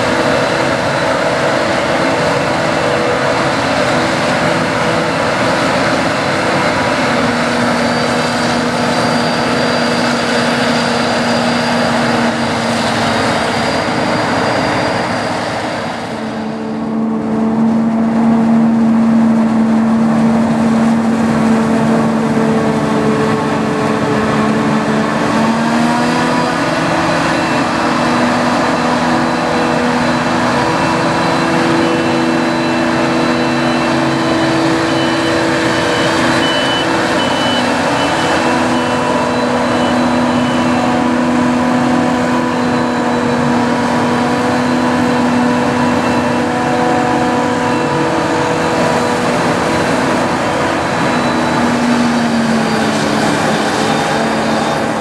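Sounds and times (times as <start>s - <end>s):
harvester engine drone with whine: 0.0s - 55.0s
tractor engines running: 0.0s - 55.0s
high beeps: 30.7s - 40.8s.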